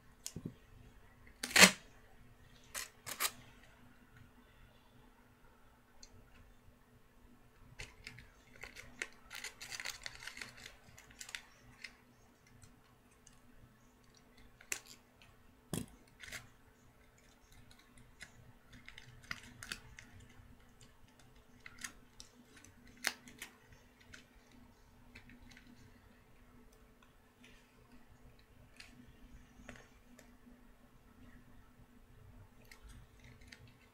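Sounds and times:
faint steady hum: 0.0 - 33.9
foil and tape crinkling: 7.8 - 12.0.

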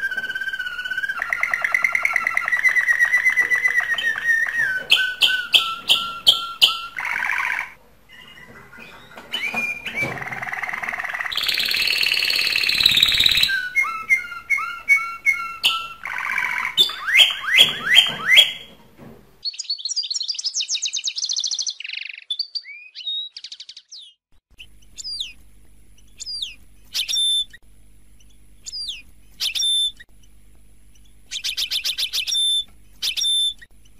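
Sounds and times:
canary singing trills: 0.0 - 18.8, 19.4 - 25.4, 26.0 - 27.6, 28.2 - 30.0, 30.9 - 33.7
faint steady hum: 24.6 - 33.9.

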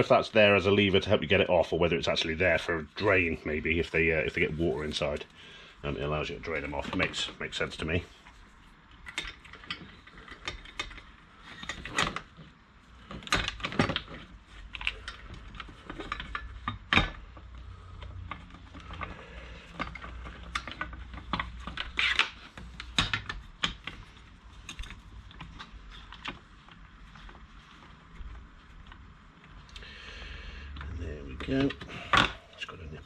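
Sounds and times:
metal sockets and tools clinking: 24.6 - 25.0.

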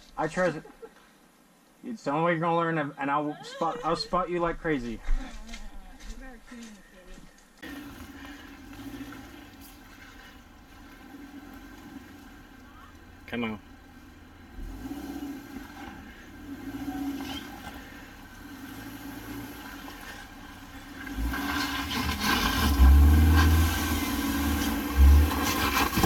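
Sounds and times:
engine running under load: 7.6 - 26.0.

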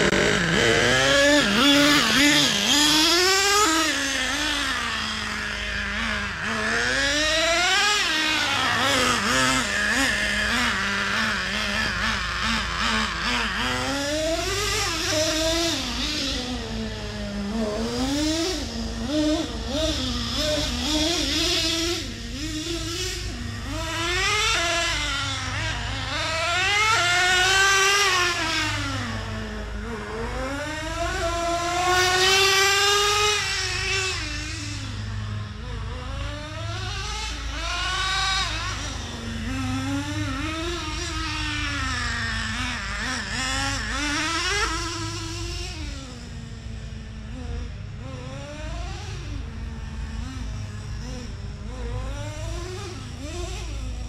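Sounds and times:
small engine revving: 0.0 - 54.0.

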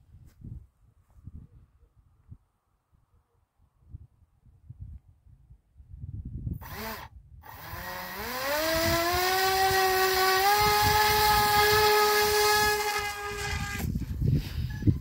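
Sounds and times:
electric motor propeller whine: 6.6 - 13.9.

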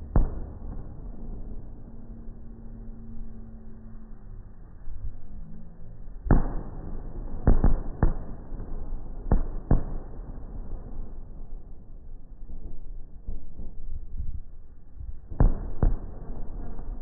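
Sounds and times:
fireworks bangs: 0.0 - 2.1, 6.2 - 11.2, 15.2 - 17.0
low rumble: 0.0 - 17.0.

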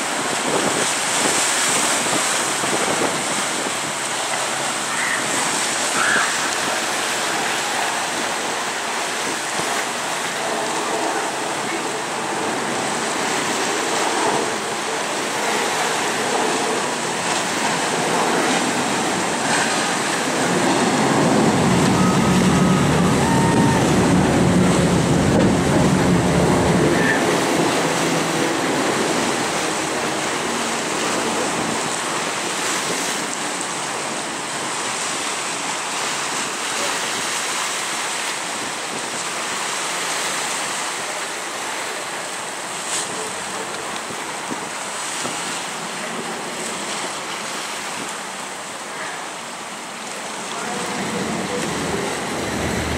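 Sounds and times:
wind buffeting microphone: 0.0 - 41.2, 50.3 - 52.9
sea waves washing: 0.0 - 52.9
deep rumble: 17.5 - 32.1, 50.5 - 52.9.

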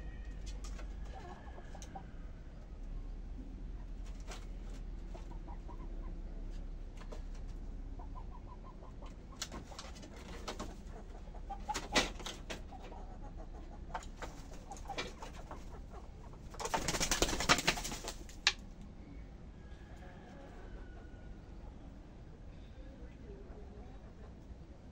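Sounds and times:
hens giving soft low calls: 0.0 - 16.9, 17.8 - 24.9
hen wing flapping: 9.4 - 10.9, 11.6 - 12.6, 14.0 - 18.6.

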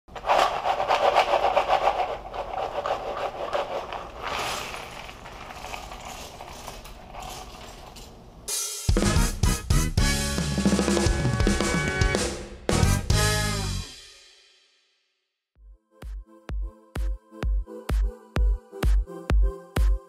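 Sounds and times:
puzzle pieces clattering on table: 0.2 - 8.2.

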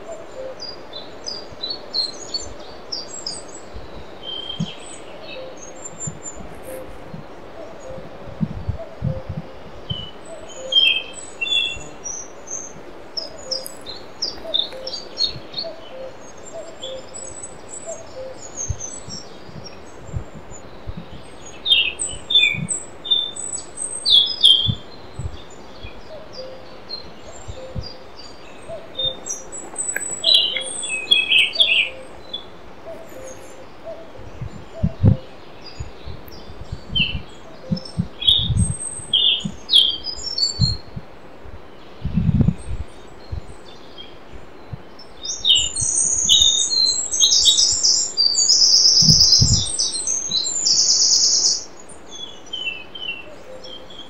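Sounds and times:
faint lower bird call: 0.0 - 23.4, 24.1 - 36.0
songbirds chirping and singing: 0.0 - 54.0.

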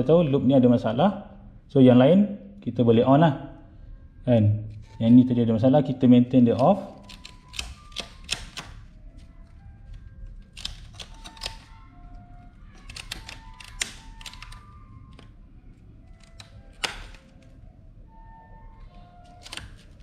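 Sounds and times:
circuit breaker switches clicking: 6.6 - 8.9, 16.1 - 17.5.

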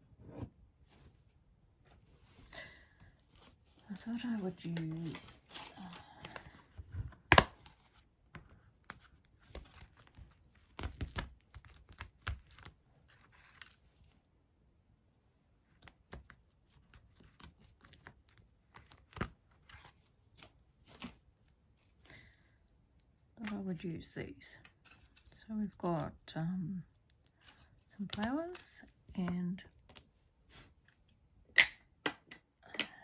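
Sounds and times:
plastic and paper rustling: 3.3 - 7.2.

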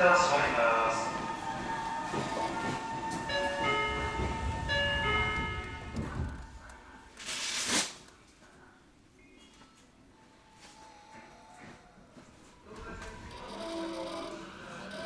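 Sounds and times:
bell-like departure melody: 2.1 - 6.2.

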